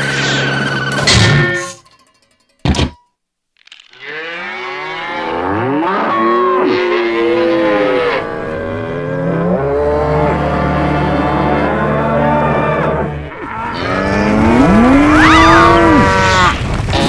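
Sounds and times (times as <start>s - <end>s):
moo can cow calls: 4.0s - 16.6s.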